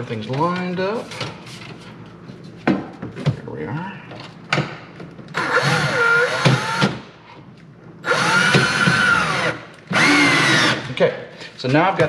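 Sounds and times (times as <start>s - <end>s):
cordless drill driving bolt: 5.4s - 7.0s, 8.0s - 10.8s.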